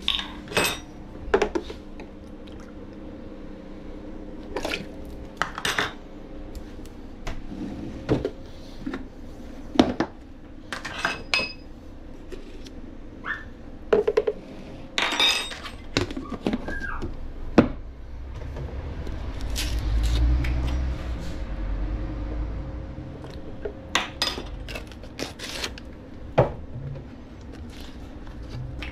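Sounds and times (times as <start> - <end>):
low rumble: 17.3 - 23.9.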